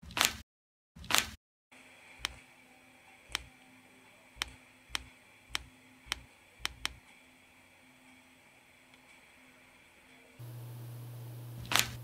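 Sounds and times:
sharp clicks: 0:04.4 - 0:07.0, 0:11.6 - 0:12.0.

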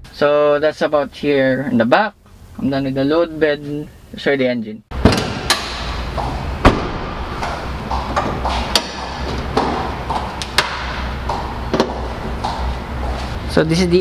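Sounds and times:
steady low hum: 0:00.0 - 0:14.0
metallic knocks and clunks: 0:04.9 - 0:12.8.

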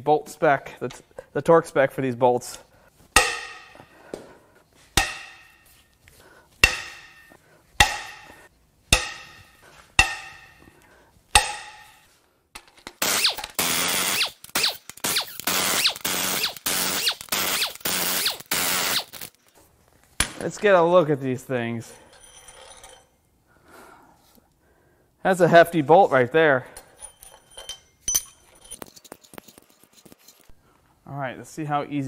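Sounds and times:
sharp metallic clinks: 0:26.8 - 0:30.5.

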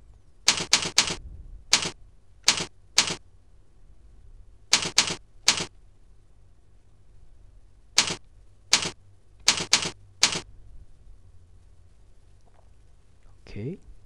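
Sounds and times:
keyboard keystrokes: 0:00.4 - 0:03.2, 0:04.7 - 0:05.7, 0:08.0 - 0:10.4.

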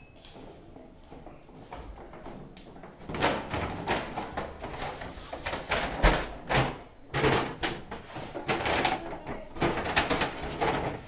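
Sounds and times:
paper bag rustling and crinkling: 0:03.0 - 0:11.0.

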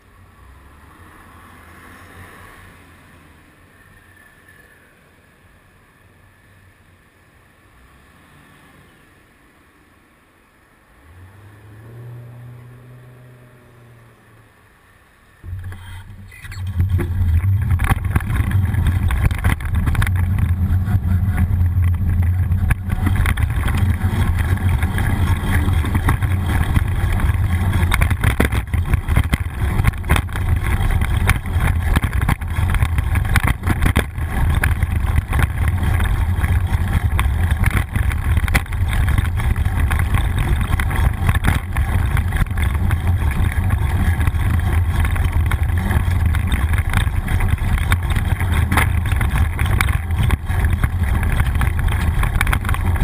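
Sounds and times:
tyre on road noise: 0:00.0 - 0:53.0
wind rumbling on microphone: 0:15.4 - 0:53.0.

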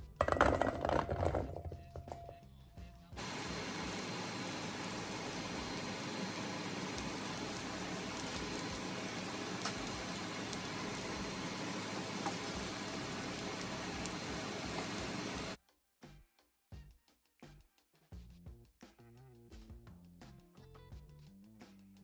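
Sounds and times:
water boiling in pots: 0:00.2 - 0:01.6, 0:03.2 - 0:15.6.

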